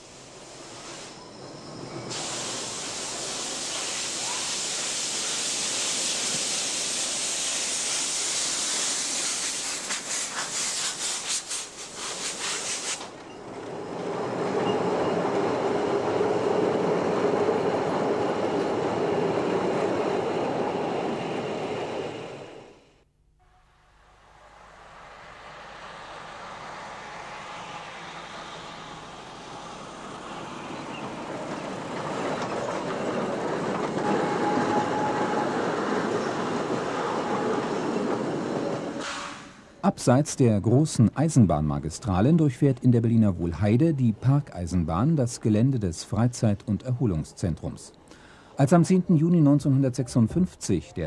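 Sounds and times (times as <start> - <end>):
steam hissing: 0.0 - 13.2, 24.4 - 39.8
train rolling by: 0.0 - 23.0, 24.0 - 51.0
steam locomotive exhaust beats: 23.6 - 39.8.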